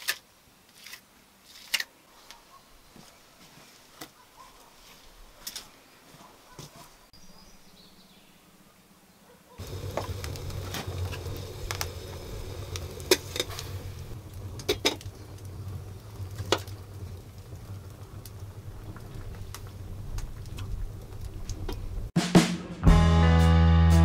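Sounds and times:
wood fire crackling and popping: 9.6 - 22.2.

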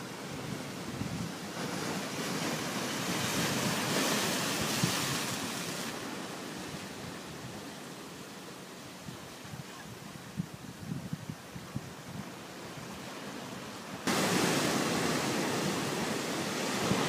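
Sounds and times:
surf breaking on rocky shore: 0.0 - 7.1, 14.0 - 17.0.

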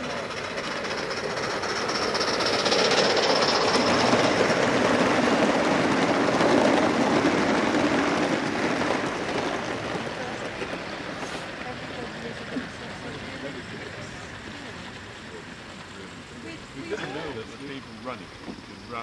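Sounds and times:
model train wheels on rails: 0.0 - 19.0.

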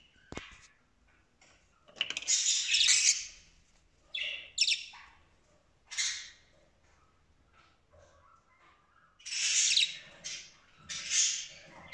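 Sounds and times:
budgerigar chirping and squawking: 2.3 - 3.4, 4.1 - 5.2, 5.9 - 6.4, 9.2 - 11.9.

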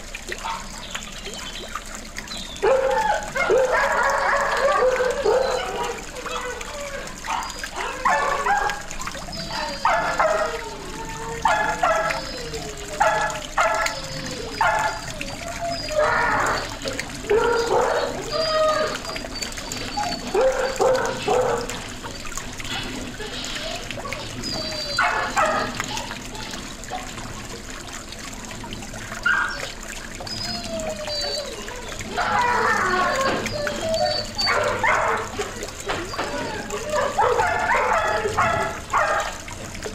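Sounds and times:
fountain trickling: 0.0 - 39.9
dog barking: 0.4 - 0.7, 2.6 - 6.2, 7.3 - 8.8, 9.8 - 10.6, 11.4 - 12.3, 13.0 - 14.0, 14.6 - 15.0, 20.3 - 21.8, 25.0 - 25.9, 34.4 - 35.6, 37.0 - 39.4.

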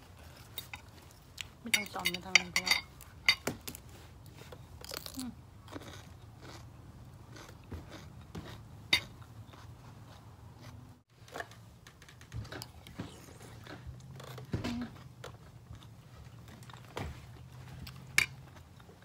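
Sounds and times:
wet chewing crunches: 3.7 - 10.8.

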